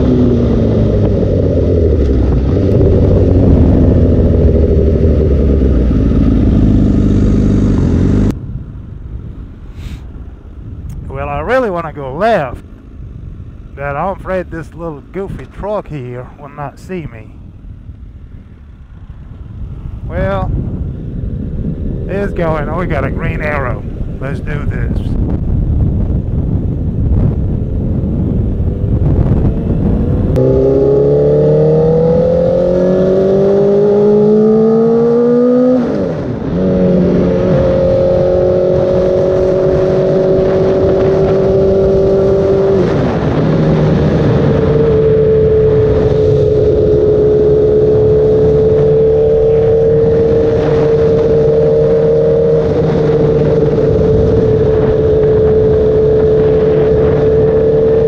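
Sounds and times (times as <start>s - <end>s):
motorcycle engine accelerating: 0.0s - 9.2s, 10.7s - 58.0s.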